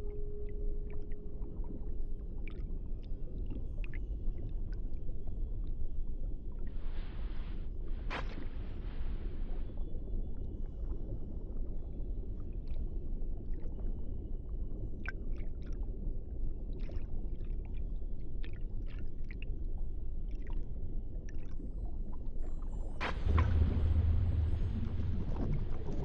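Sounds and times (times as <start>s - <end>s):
low underwater rumble: 21.3s - 26.0s.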